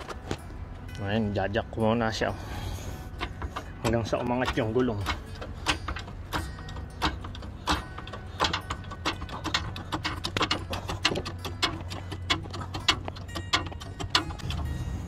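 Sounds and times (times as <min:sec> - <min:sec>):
hydraulic jack clicking and clanking: 0:02.5 - 0:15.0.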